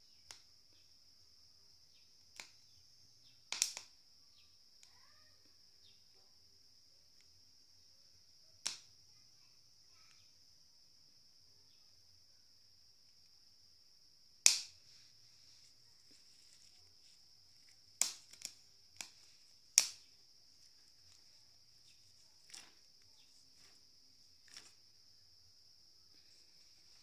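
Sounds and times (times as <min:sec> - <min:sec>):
crickets chirring: 0:00.0 - 0:27.0
maize cobs popping and crackling: 0:00.1 - 0:00.8, 0:02.0 - 0:04.1, 0:08.6 - 0:09.0, 0:14.4 - 0:27.0.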